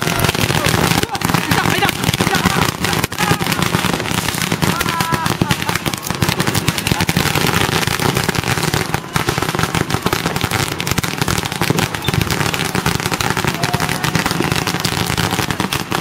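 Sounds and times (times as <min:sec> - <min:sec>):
firecrackers crackling: 0:00.0 - 0:16.0
firework whistle: 0:11.6 - 0:15.3.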